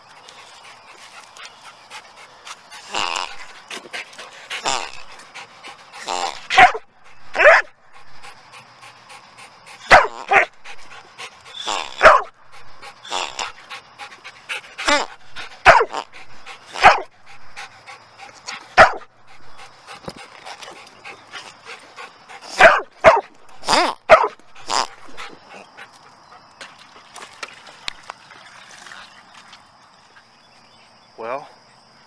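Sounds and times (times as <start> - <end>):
rubber toy squeaky oinks: 2.9 - 3.4, 6.1 - 6.5, 11.6 - 12.0, 13.1 - 13.6, 14.8 - 15.1, 23.6 - 24.0, 24.6 - 25.0.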